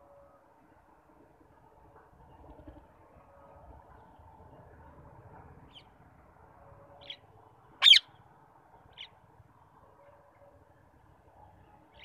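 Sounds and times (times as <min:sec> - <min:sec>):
parakeet shriek: 0:07.8 - 0:08.1.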